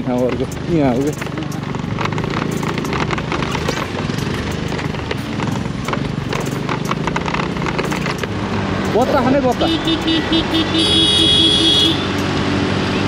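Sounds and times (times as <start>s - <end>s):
knocks and rattles from bumps: 0.0s - 9.7s
scooter engine running: 0.0s - 13.0s.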